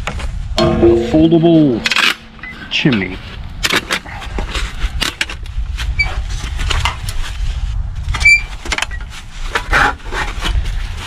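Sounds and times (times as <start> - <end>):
wind on microphone: 0.0 - 11.0
loud ringing metal clank: 0.6 - 3.1.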